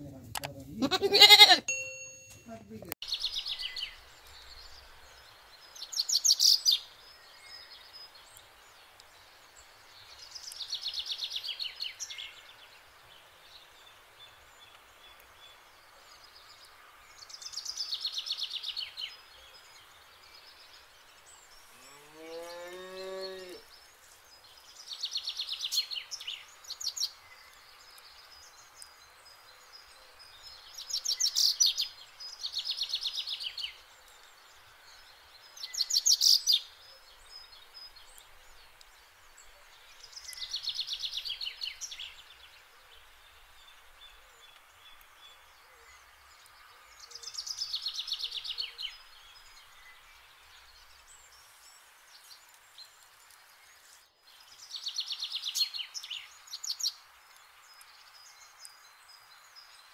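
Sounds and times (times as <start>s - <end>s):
cow mooing: 21.8s - 23.6s.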